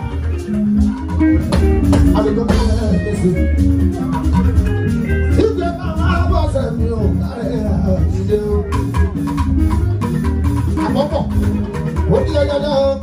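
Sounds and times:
drum beat: 0:00.0 - 0:13.0
guitar: 0:00.0 - 0:13.0.

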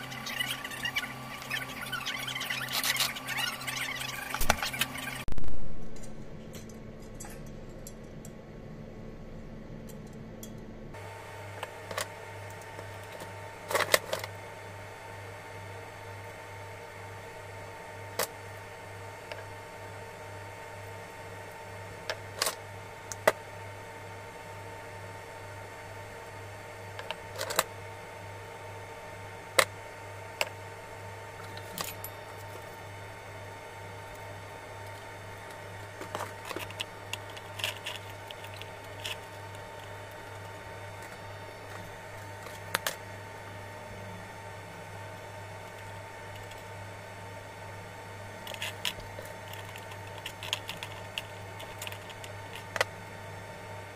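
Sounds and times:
low hum: 0:00.0 - 0:17.7
steady low hum: 0:00.0 - 0:53.9.

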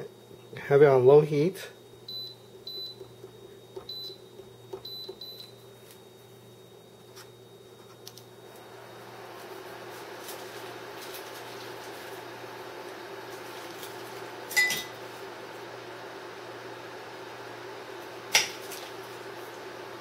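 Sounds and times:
steady low hum: 0:00.0 - 0:20.0
cooktop touch controls beeping: 0:02.0 - 0:05.6.

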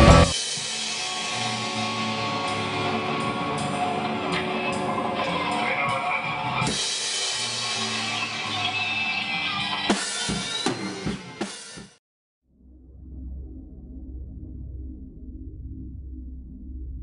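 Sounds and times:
drum hits: 0:00.0 - 0:01.5
chord ringing out: 0:00.0 - 0:06.7
metal band playing: 0:00.0 - 0:11.7.

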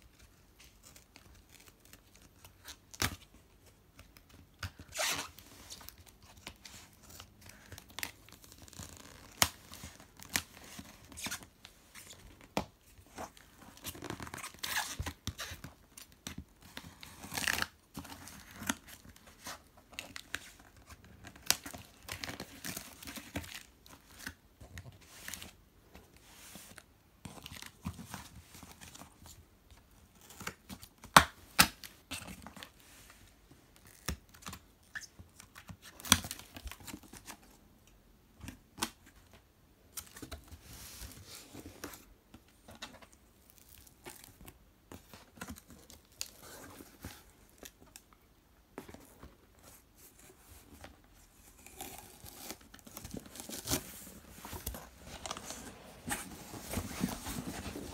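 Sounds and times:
cardboard flaps scraping: 0:53.4 - 0:57.9.

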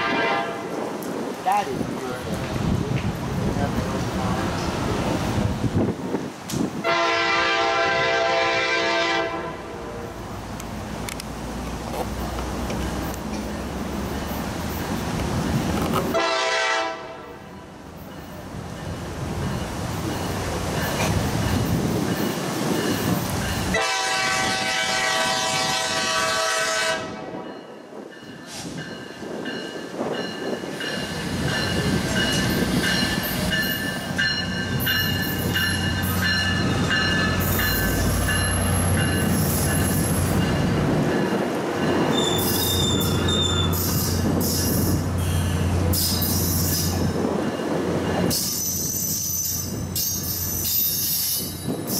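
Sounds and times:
train horn blast: 0:00.0 - 0:00.7, 0:06.8 - 0:10.1, 0:16.1 - 0:17.4, 0:23.7 - 0:27.4
diesel locomotive engine rumbling: 0:00.0 - 0:51.9
train wheels squealing and clicking: 0:28.3 - 0:40.7, 0:41.3 - 0:51.9.

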